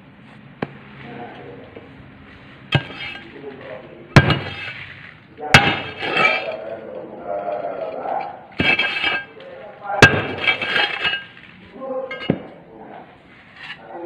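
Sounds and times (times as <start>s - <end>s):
hammer clanking on steel plate: 2.7s - 3.3s, 4.2s - 4.8s, 5.5s - 6.7s, 7.9s - 9.3s, 10.0s - 11.4s, 12.1s - 12.5s.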